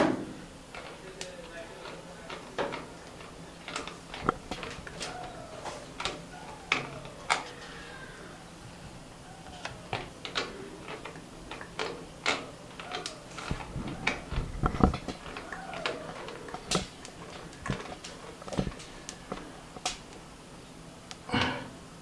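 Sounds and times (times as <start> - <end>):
plastic fittings clicking and knocking: 0.7 - 5.4, 9.6 - 20.0.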